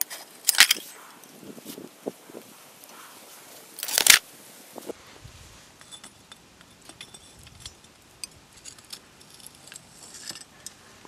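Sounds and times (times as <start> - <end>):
metal pliers clinking among debris: 0.0 - 0.9, 5.8 - 10.8.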